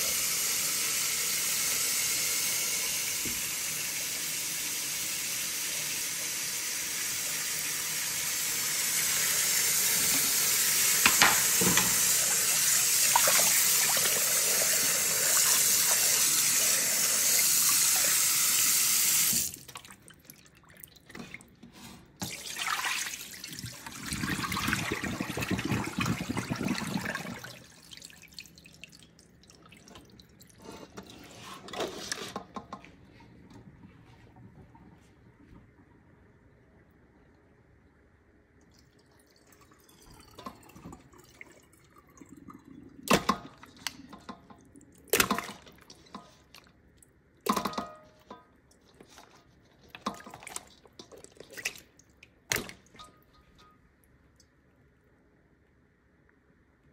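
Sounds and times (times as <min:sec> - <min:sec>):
tap water running into bowl: 0:08.9 - 0:20.0.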